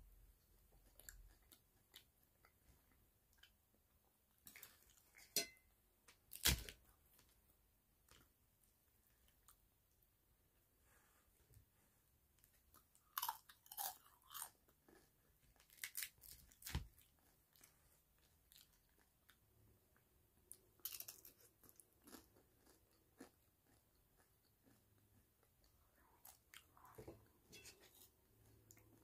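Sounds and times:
tostada shell crackling and crunching: 12.7 - 17.7, 20.5 - 25.6.

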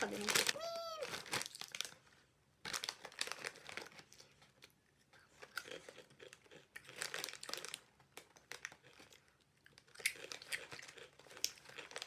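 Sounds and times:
chips crunching while chewed: 5.4 - 12.0.

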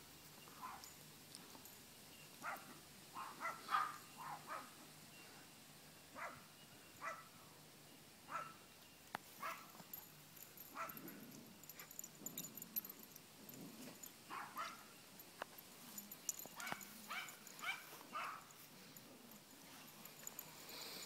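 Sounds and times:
small dogs yipping and barking: 0.4 - 1.0, 2.3 - 4.8, 6.2 - 7.3, 8.3 - 8.6, 9.4 - 15.0, 15.9 - 20.9.

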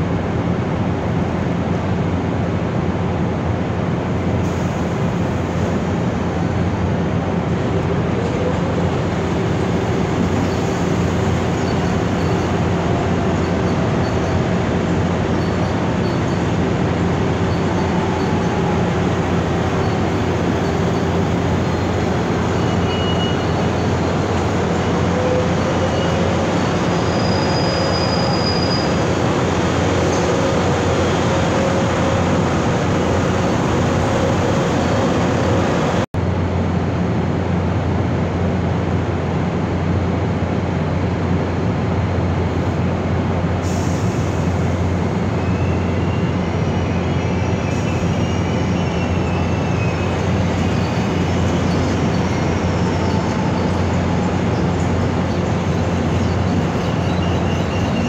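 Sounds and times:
electric train rumbling: 0.0 - 58.0
wheel squeals: 10.2 - 36.0, 45.3 - 58.0.

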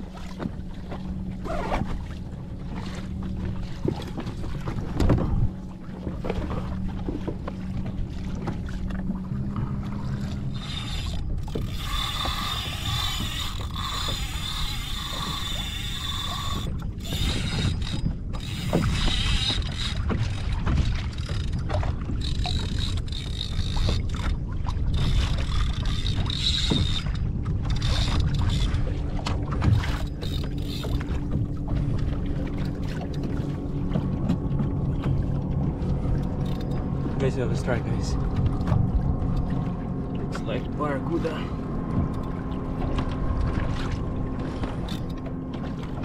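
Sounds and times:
water noise: 0.0 - 46.0
wind: 0.0 - 46.0
fishing reel clicking and rattling: 10.5 - 20.4, 22.2 - 24.3, 24.9 - 28.8, 29.8 - 31.1, 36.4 - 36.8, 44.8 - 45.2.

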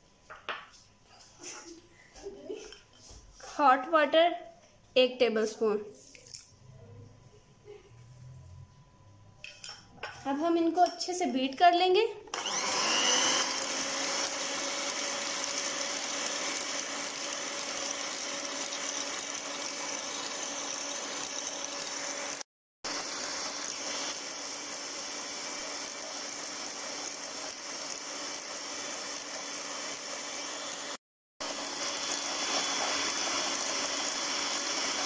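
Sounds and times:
electric hand mixer whirring: 12.3 - 35.0.

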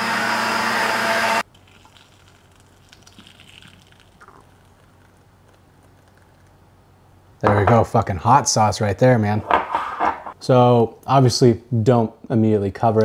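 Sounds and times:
blender running with whine: 0.0 - 1.4
thick sauce pouring into bottle: 1.4 - 6.6.

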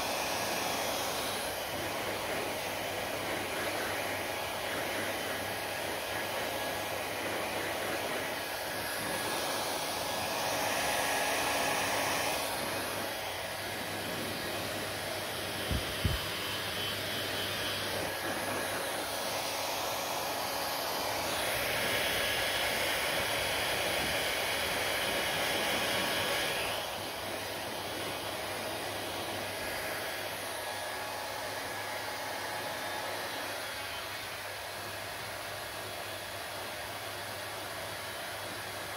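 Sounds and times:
hair dryer blowing: 0.0 - 38.9.

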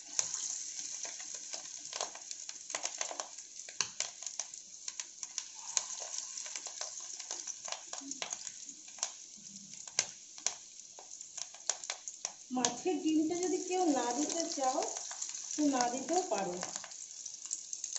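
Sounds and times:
food deep-frying in hot oil: 0.0 - 17.9.

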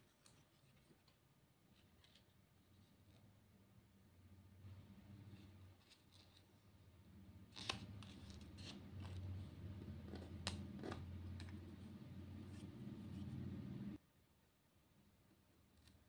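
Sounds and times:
paper ticks and crinkles: 0.0 - 3.2
steady low hum: 6.5 - 14.0.

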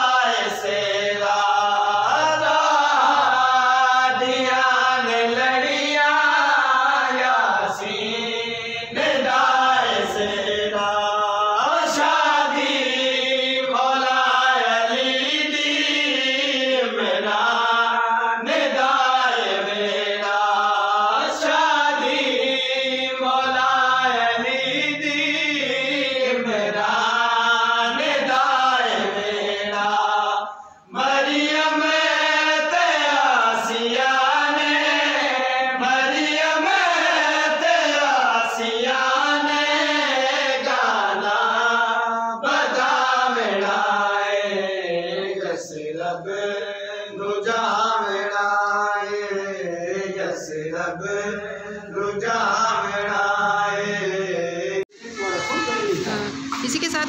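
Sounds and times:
voice chanting a slow melody: 54.8 - 57.0.

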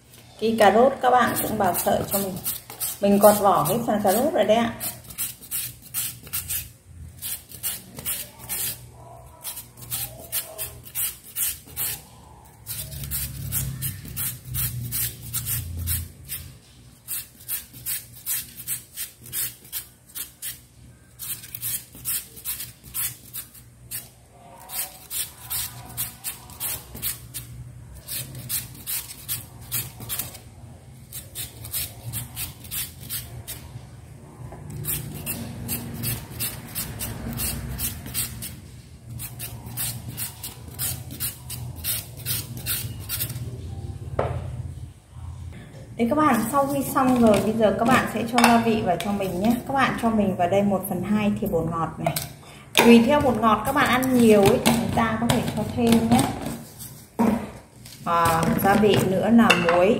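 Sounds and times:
carrot rasping on grater: 1.3 - 8.8, 17.0 - 20.6.

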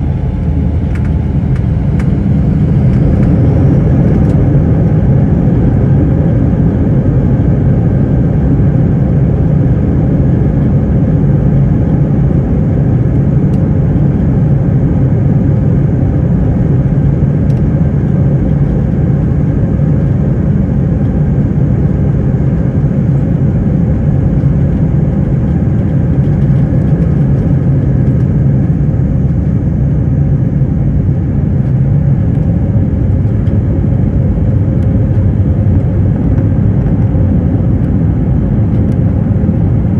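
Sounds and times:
takeoff roll rumble: 0.0 - 7.4, 31.0 - 39.9
jet engines at takeoff thrust: 0.0 - 39.9.

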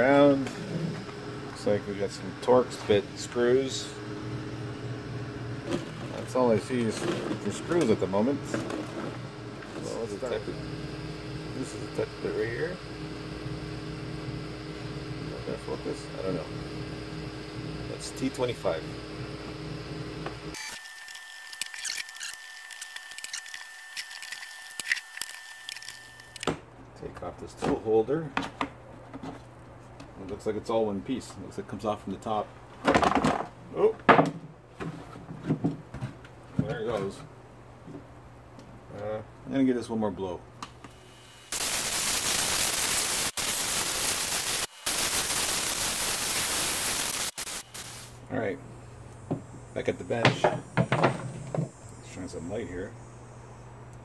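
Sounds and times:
faint high whine: 9.3 - 26.6, 38.9 - 54.0
screwdriver clicking and scraping: 20.7 - 26.5
compressed air hissing: 41.5 - 48.2.

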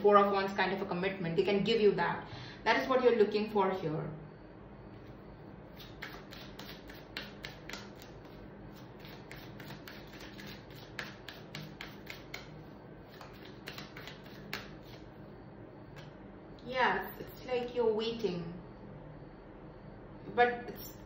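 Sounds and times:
faint steady hum: 0.0 - 21.0
cards clicking and tapping: 5.8 - 12.6, 13.2 - 15.0.

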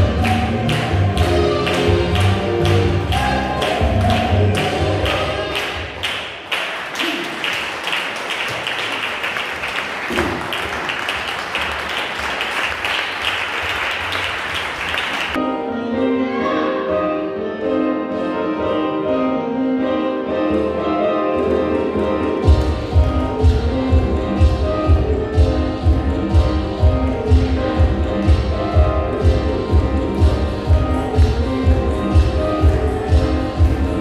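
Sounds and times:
string and piano music: 0.0 - 5.7, 15.4 - 34.0
ballroom dance music over pa: 0.0 - 7.3, 11.1 - 34.0
applause: 0.2 - 15.4.

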